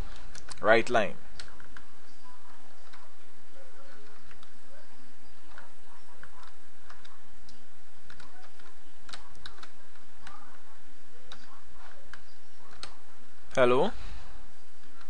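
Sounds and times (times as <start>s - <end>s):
keyboard typing clicks: 5.5s - 10.4s.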